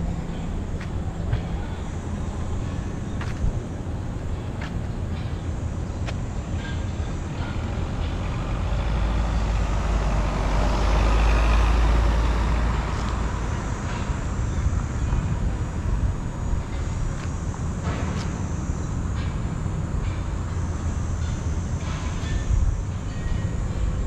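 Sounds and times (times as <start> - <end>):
city street traffic: 0.0 - 24.0
vehicle passing close by: 8.3 - 13.8.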